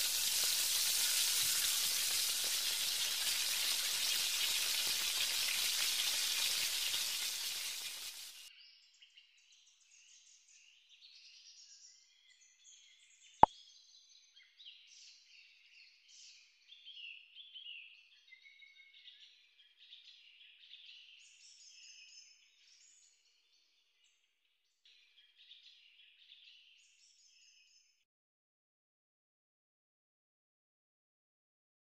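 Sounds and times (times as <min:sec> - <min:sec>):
oil sizzling while deep-frying: 0:00.0 - 0:08.5.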